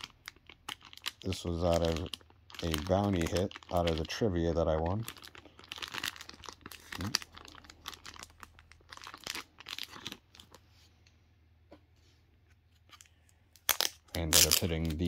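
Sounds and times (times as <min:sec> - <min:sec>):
paper and plastic packaging tearing: 0:00.0 - 0:10.6, 0:13.7 - 0:15.0.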